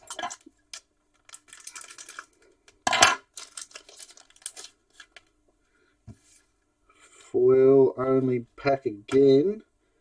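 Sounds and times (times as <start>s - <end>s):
foil wrapper crinkling and tearing: 0.7s - 2.6s, 3.3s - 5.3s.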